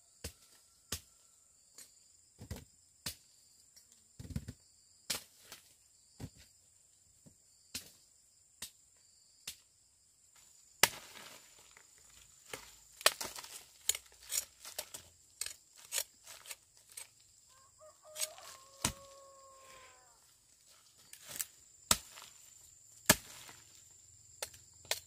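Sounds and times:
insect trill: 0:00.1 - 0:25.0
chicken calling: 0:17.5 - 0:20.3.

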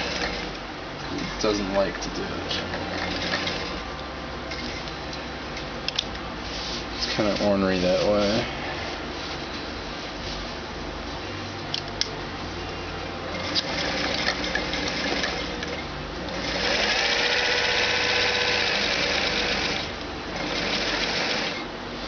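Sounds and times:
sewing machine stitching: 0:00.0 - 0:00.5, 0:02.7 - 0:03.8, 0:13.3 - 0:21.6.

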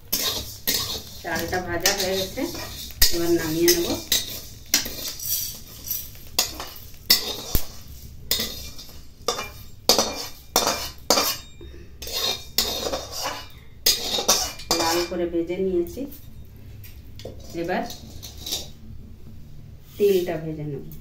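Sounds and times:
metal spatula scraping pan: 0:00.0 - 0:15.2, 0:17.2 - 0:18.8.

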